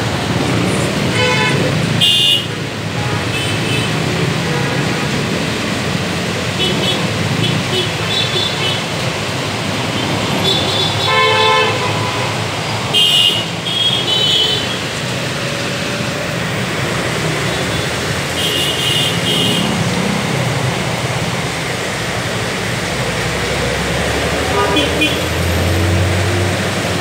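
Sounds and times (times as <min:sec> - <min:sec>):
heavy rain: 0:00.0 - 0:27.0
road traffic engines: 0:00.0 - 0:27.0
vehicle horns tooting: 0:01.1 - 0:04.8, 0:06.6 - 0:08.8, 0:10.0 - 0:14.9, 0:17.5 - 0:19.8, 0:24.4 - 0:25.4.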